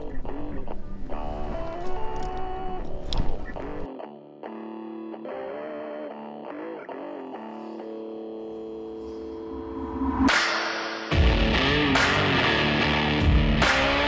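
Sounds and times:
distorted electric guitar: 0:00.0 - 0:14.0
whoosh: 0:09.0 - 0:12.2
rock band playing loud: 0:10.4 - 0:14.0.

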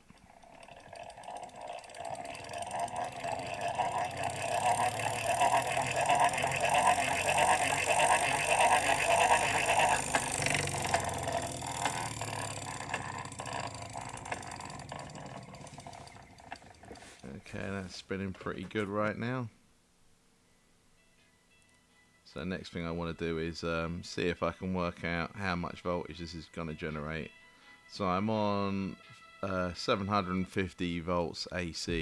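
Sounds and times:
hand-cranked machine whirring: 0:00.0 - 0:18.9.

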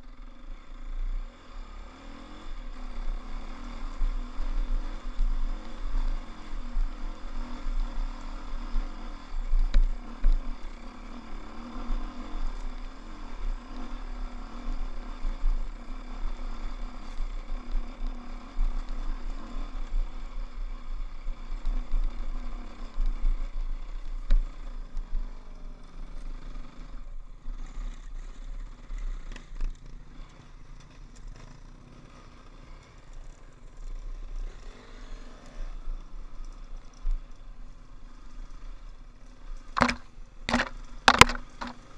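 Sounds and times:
dirt bike engine under throttle: 0:00.0 - 0:41.9
wind rumble on camera: 0:02.3 - 0:25.6
sharp knocks: 0:39.8 - 0:41.8.

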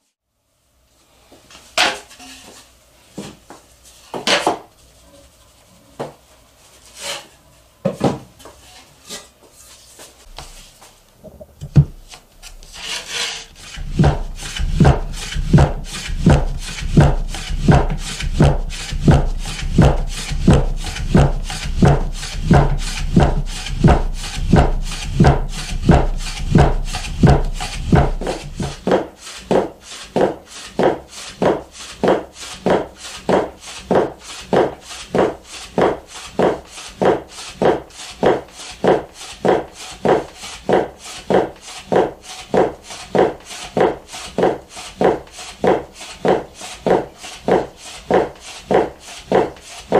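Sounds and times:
knife cutting noodle dough: 0:11.7 - 0:49.9
knife knocking on wooden board: 0:13.8 - 0:28.8.

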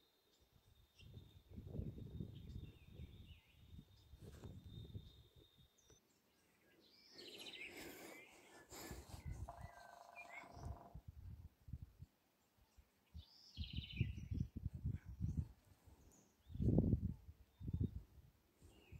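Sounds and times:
birds calling: 0:05.8 - 0:11.0.

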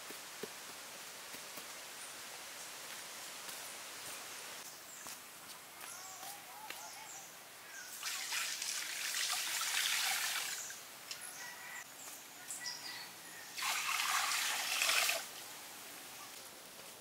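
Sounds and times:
water pouring and splashing: 0:08.0 - 0:10.8, 0:13.6 - 0:15.3.

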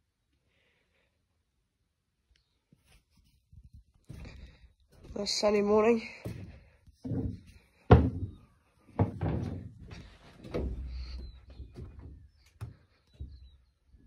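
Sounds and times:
footsteps on hollow wooden floor: 0:03.9 - 0:14.0.

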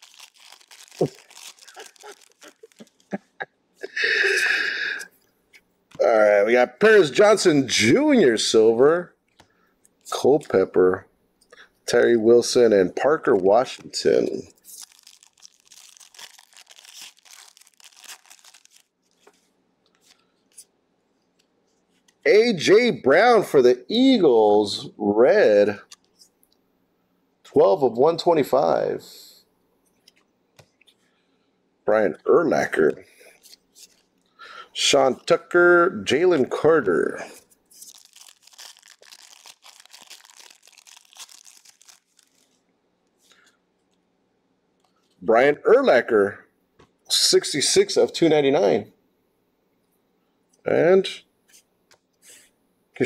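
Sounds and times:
foil wrapper tearing and crinkling: 0:00.0 - 0:03.2, 0:13.4 - 0:19.4, 0:37.7 - 0:42.6.

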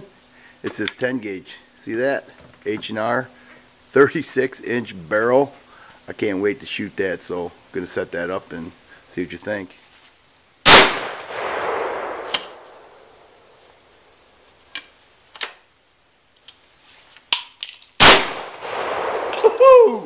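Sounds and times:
shotgun shots echoing: 0:10.7 - 0:13.3, 0:18.0 - 0:19.4
shotgun action clicks: 0:11.6 - 0:12.8.

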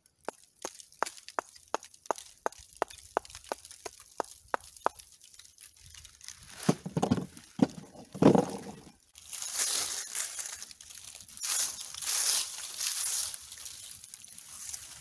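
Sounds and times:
dry leaves rustling: 0:00.0 - 0:15.0
brick knocking on brick: 0:06.7 - 0:08.9.

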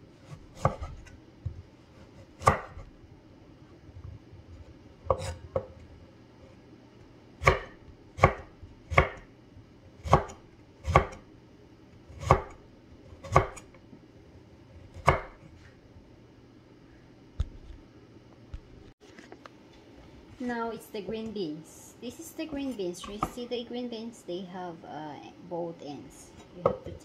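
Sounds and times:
knife chopping on wooden board: 0:00.3 - 0:01.6, 0:02.2 - 0:02.9, 0:05.0 - 0:05.8, 0:07.4 - 0:09.3, 0:10.0 - 0:11.2, 0:12.1 - 0:12.6, 0:13.2 - 0:13.7, 0:14.9 - 0:15.4.

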